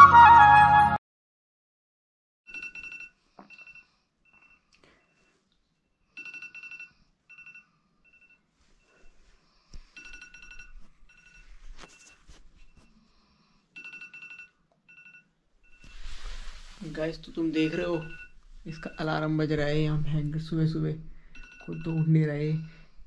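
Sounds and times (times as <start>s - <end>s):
alarm beeping: 17.0s - 20.1s, 21.3s - 22.8s.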